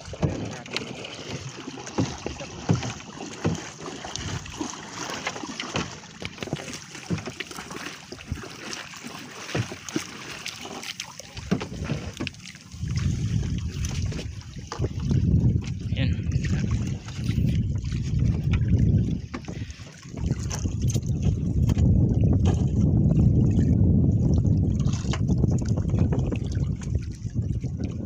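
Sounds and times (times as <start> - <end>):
floats knocking against hull: 0.0 - 23.8, 24.4 - 28.0
wet net and water splashing: 0.0 - 28.0
wind buffeting microphone: 11.3 - 28.0.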